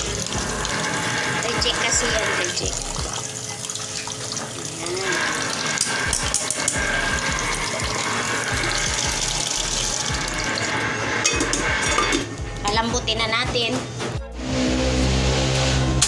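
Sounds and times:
tap water pouring into pot: 0:00.0 - 0:12.3.

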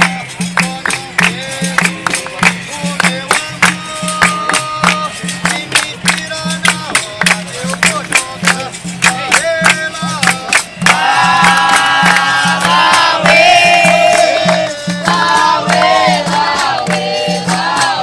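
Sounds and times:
hand drum beat: 0:00.0 - 0:18.0
hand-claps: 0:00.0 - 0:18.0
group chorus singing: 0:10.8 - 0:18.0.

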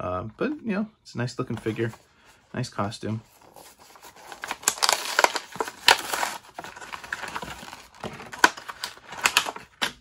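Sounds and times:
plastic crinkling and clicks: 0:06.8 - 0:10.0.

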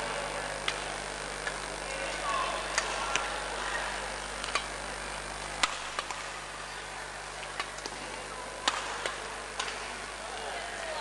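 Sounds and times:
sports hall hum: 0:00.0 - 0:11.0
racket hitting shuttlecock: 0:05.6 - 0:06.3, 0:08.6 - 0:09.9.

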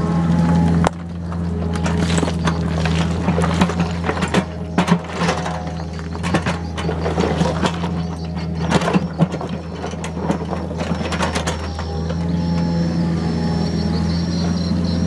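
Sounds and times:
excavator diesel engine running: 0:00.0 - 0:15.0
bucket clanking and scraping rock: 0:00.7 - 0:12.4.

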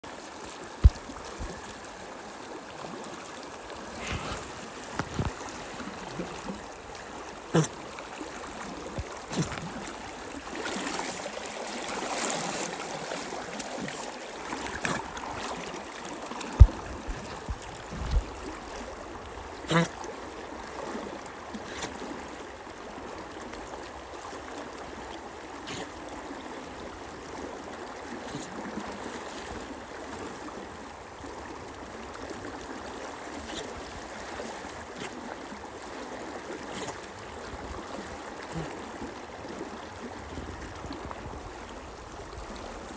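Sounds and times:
faint water splashes: 0:00.0 - 0:42.9
river water rushing: 0:00.0 - 0:42.9.

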